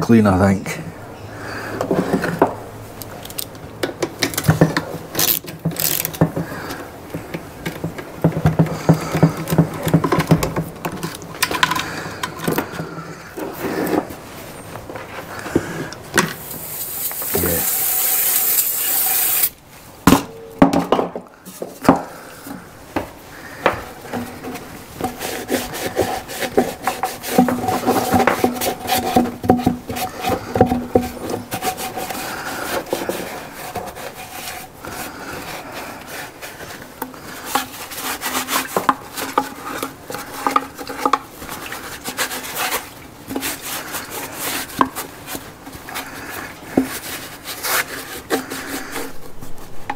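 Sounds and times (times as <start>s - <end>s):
hands scraping and clicking parts: 1.8s - 49.9s
hiss of blown air: 16.4s - 19.6s.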